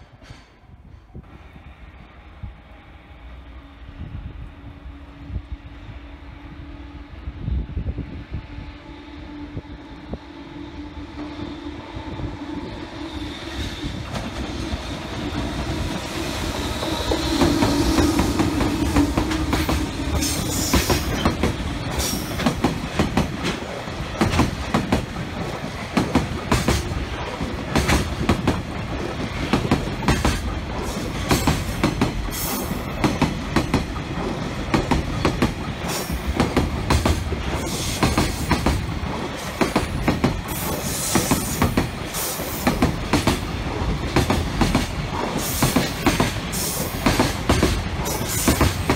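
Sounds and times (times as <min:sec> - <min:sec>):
electric locomotive passing: 0:00.0 - 0:48.9
wheels clacking over rail joints: 0:14.0 - 0:48.9.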